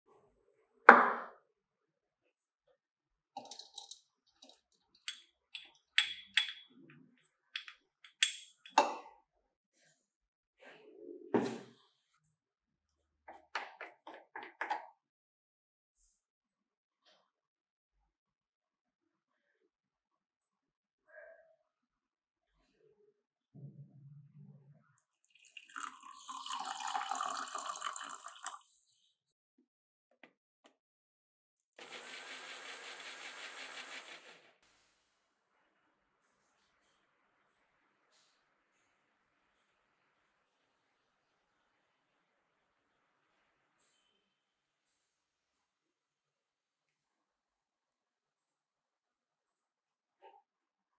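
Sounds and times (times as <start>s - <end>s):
water pouring into plastic cup: 25.2s - 28.7s.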